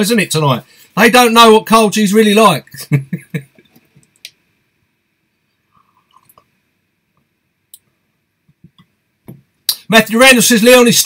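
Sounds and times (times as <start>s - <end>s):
man sipping from a mug: 5.6s - 6.5s
soft slurps: 5.7s - 6.5s.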